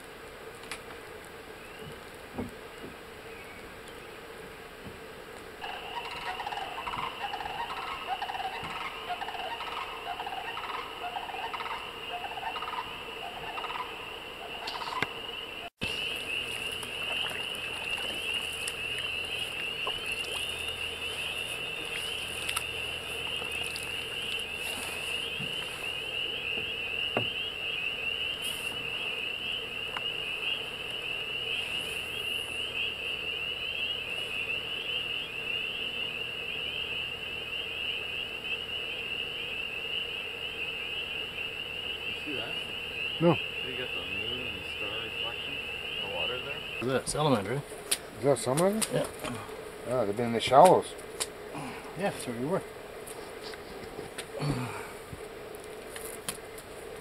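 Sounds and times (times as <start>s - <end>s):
frog chorus high peeps: 5.6s - 47.6s
lower-pitched chorus of calls: 5.6s - 47.6s.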